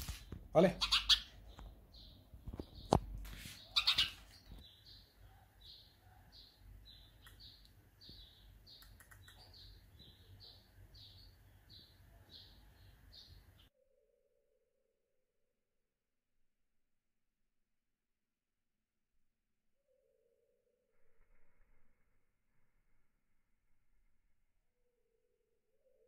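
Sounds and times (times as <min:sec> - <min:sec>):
sparrow chirping: 0:00.6 - 0:13.7.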